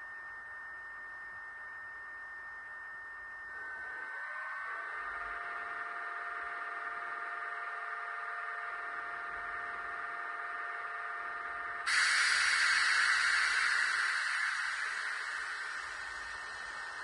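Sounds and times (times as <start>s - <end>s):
electrical hum: 8.1s - 17.0s
held whining tones: 11.9s - 17.0s
loud hiss: 11.9s - 17.0s.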